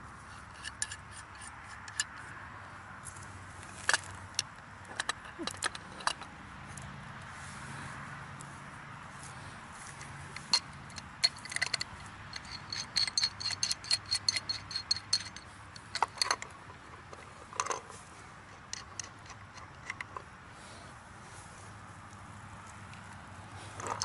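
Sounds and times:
metal tools clinking on pipe: 0:03.8 - 0:06.9, 0:09.9 - 0:20.2, 0:23.8 - 0:24.0.

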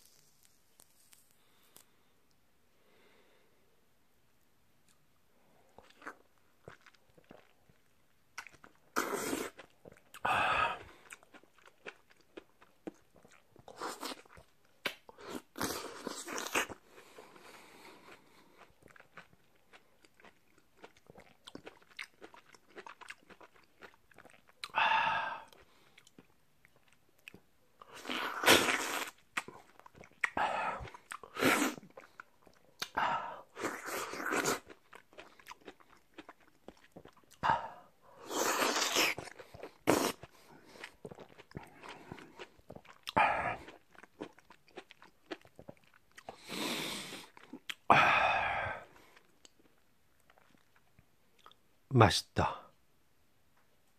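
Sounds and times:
juicy biting and chewing: 0:05.8 - 0:24.8, 0:25.4 - 0:37.4, 0:38.2 - 0:47.9.

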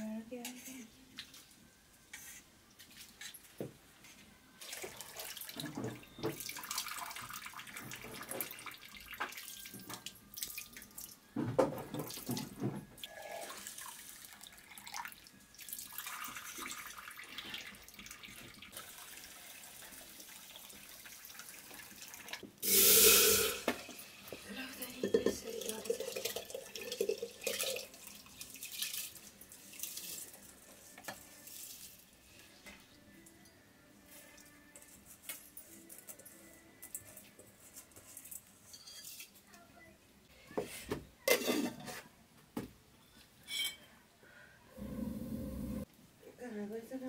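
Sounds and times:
water pouring into pot: 0:04.6 - 0:11.2, 0:13.0 - 0:24.4, 0:25.3 - 0:30.6.

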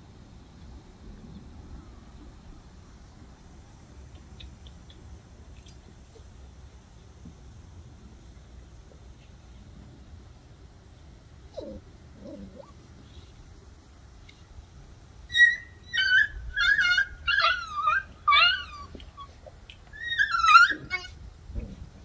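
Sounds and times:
puppy whining and yelping: 0:11.5 - 0:14.0, 0:14.9 - 0:21.2.

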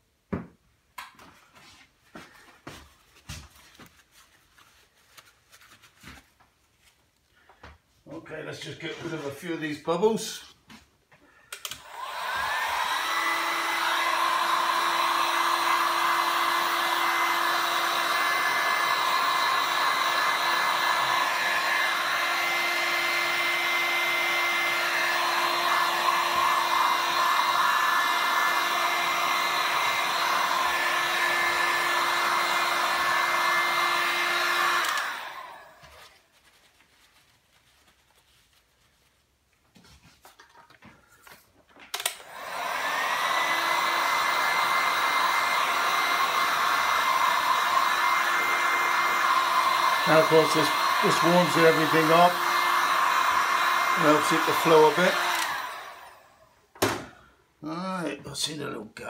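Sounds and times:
heat gun fan blowing: 0:11.5 - 0:36.1, 0:41.9 - 0:57.1.

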